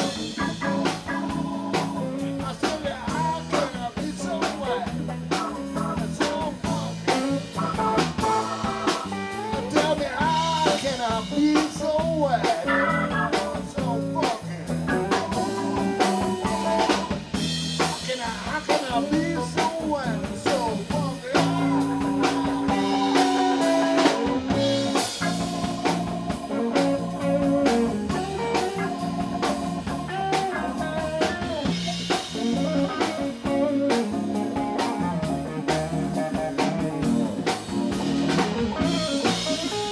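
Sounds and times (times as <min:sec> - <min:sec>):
bass: 0:00.0 - 0:39.9
drum kit beat: 0:00.0 - 0:39.9
electric guitar: 0:00.0 - 0:39.9
organ: 0:00.0 - 0:39.9.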